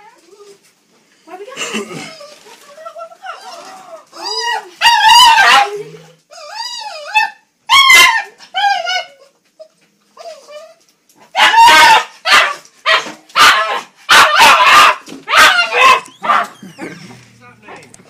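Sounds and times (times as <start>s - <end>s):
small dog whining yelps: 4.2s - 10.8s, 11.4s - 16.9s
small dog sharp barks: 11.4s - 16.6s.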